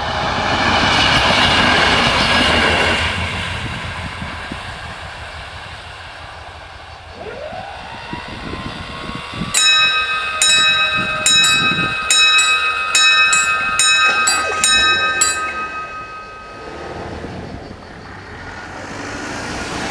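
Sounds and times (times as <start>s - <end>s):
level crossing bells ringing: 9.6s - 17.5s.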